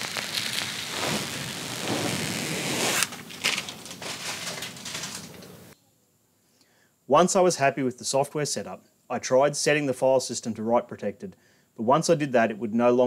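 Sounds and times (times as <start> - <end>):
plastic film peeling crackle: 0.0 - 5.8.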